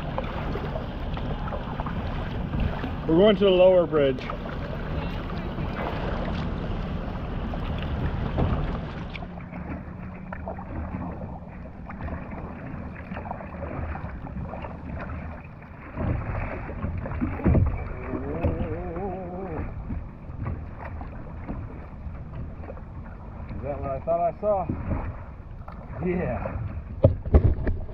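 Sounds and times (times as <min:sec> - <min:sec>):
kayak paddle strokes: 0:00.0 - 0:27.9
water sloshing against hull: 0:00.0 - 0:27.9
thumps on kayak: 0:07.6 - 0:11.2, 0:15.8 - 0:18.8, 0:26.5 - 0:27.9.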